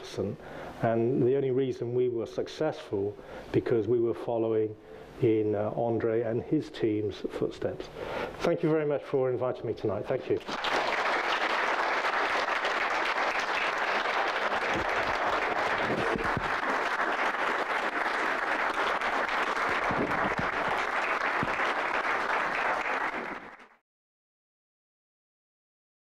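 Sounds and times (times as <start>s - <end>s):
audience applauding: 10.4s - 23.8s.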